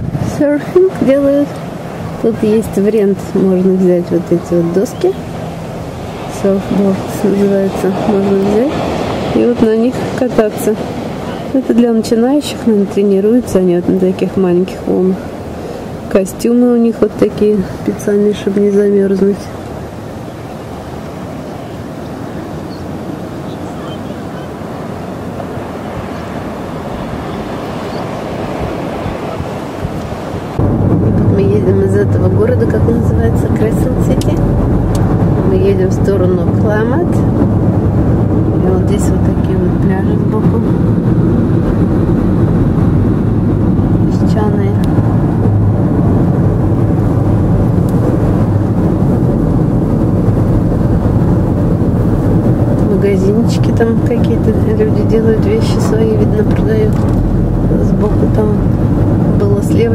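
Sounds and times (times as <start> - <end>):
ocean surf breaking: 0.0 - 59.9
car driving interior rumble: 29.8 - 59.9.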